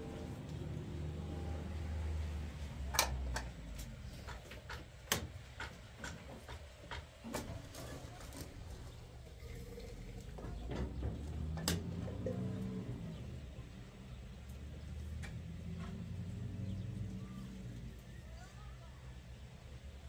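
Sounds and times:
sharp taps and clicks: 3.0 - 7.1.

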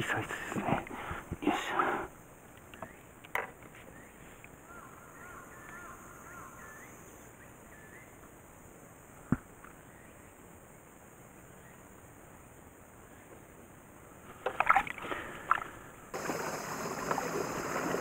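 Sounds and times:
bird chirping: 2.6 - 3.1, 3.8 - 8.3.

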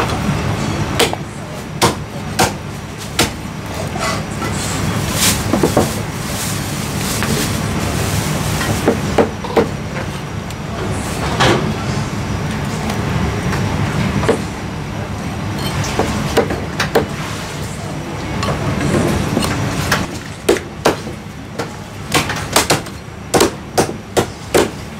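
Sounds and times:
low background hum: 0.0 - 24.9
cleaver chopping on wooden block: 22.1 - 24.8.

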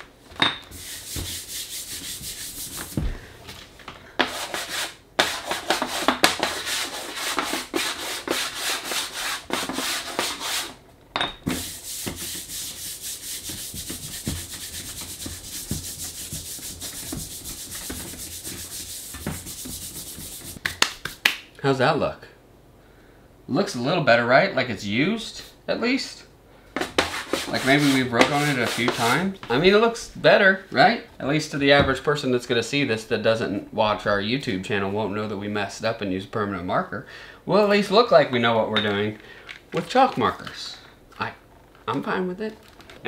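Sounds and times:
chalk scratching on chalkboard: 0.7 - 3.0, 4.2 - 10.8, 11.5 - 20.6, 26.9 - 29.3
palm smearing chalk on board: 0.7 - 3.1, 4.2 - 10.8, 11.5 - 20.6, 26.8 - 29.3.

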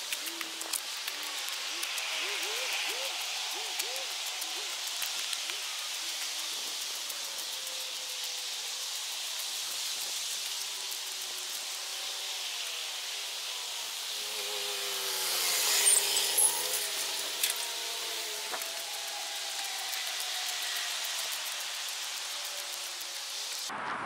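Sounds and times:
steady hiss: 0.0 - 24.0
toy car motor whining: 14.0 - 23.2.

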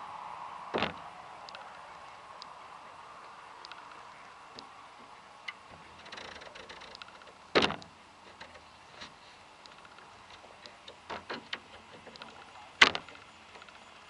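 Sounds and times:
faint outdoor background: 0.0 - 14.0
sharp loud knock: 0.8 - 1.0
light ticks: 1.5 - 1.8, 3.2 - 4.7, 5.4 - 8.7, 9.6 - 14.0.

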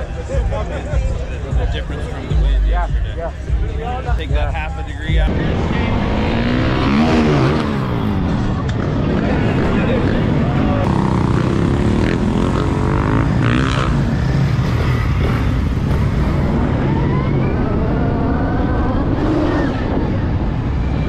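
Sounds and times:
dirt bike motors revving: 5.2 - 21.0.

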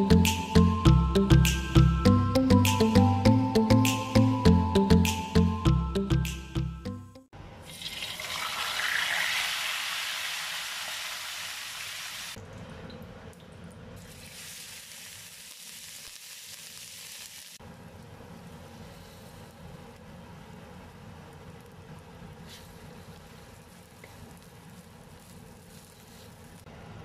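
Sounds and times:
background music: 0.0 - 7.3
oil sizzling in a wok: 7.6 - 12.4, 14.0 - 17.6, 22.5 - 26.7.

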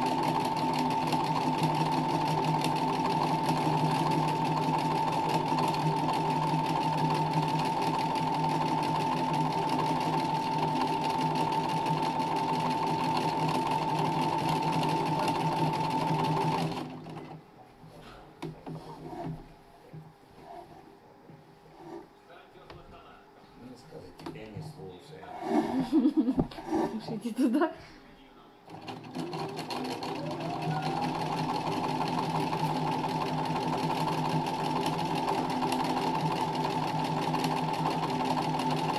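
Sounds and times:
sewing machine humming: 0.0 - 17.4, 25.7 - 27.1, 28.7 - 38.9.

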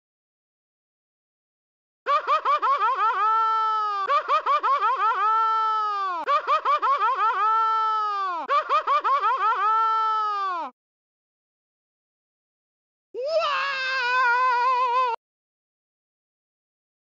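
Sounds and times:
laugh-like wah sound effect: 2.1 - 10.0.

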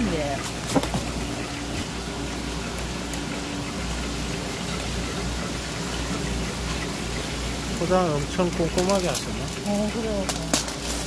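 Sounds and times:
running seawater patter and hiss: 0.0 - 11.0.

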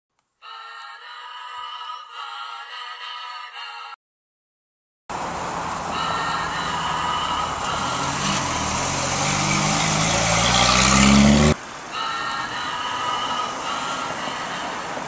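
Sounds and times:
car engine accelerating: 5.1 - 11.6
street noise hiss: 5.1 - 15.0.

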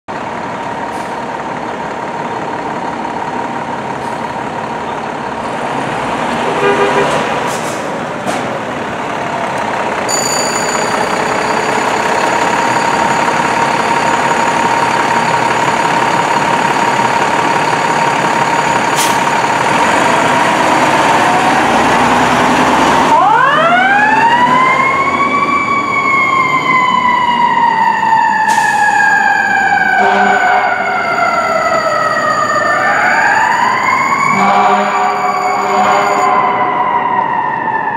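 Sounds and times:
air horn blast: 6.4 - 7.4, 30.0 - 30.8, 34.3 - 36.7
siren steady high tone: 10.1 - 22.1, 23.0 - 37.9
electronic siren wailing: 23.0 - 37.9.

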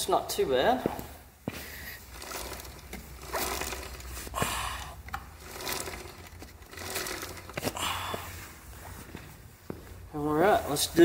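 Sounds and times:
drive chain whirring over sprocket: 2.0 - 8.0.

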